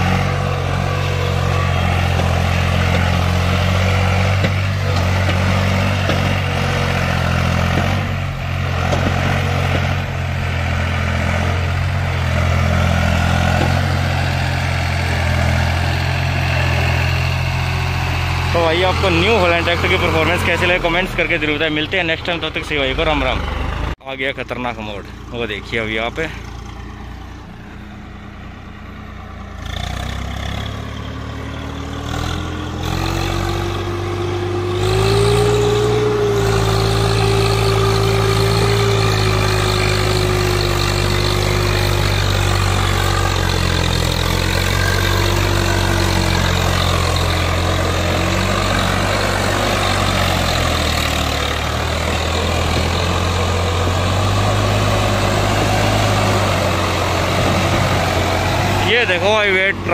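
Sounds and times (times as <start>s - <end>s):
engine whine: 0.0s - 59.9s
tractor diesel engine under load: 0.0s - 59.9s.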